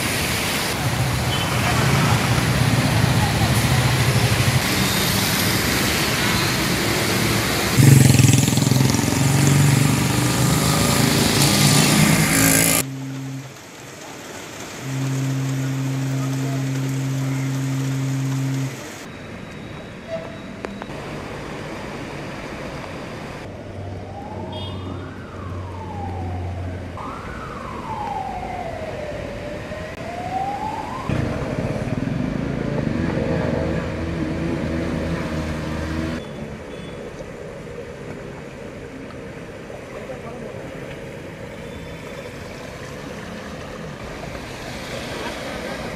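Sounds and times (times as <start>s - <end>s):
traffic: 0.0s - 45.9s
water noise: 0.0s - 45.9s
siren wailing: 23.9s - 33.0s.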